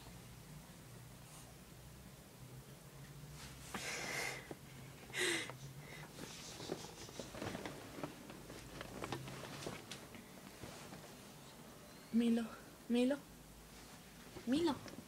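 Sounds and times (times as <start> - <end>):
bedding rustling: 6.1 - 11.4, 13.6 - 15.0.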